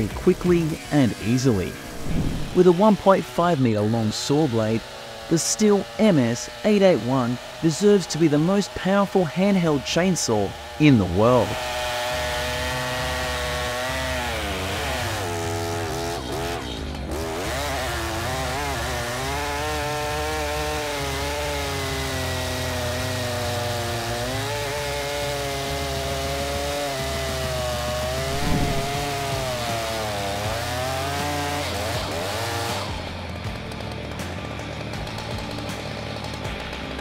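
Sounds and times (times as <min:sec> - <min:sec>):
chainsaw cutting wood: 0:00.0 - 0:37.0.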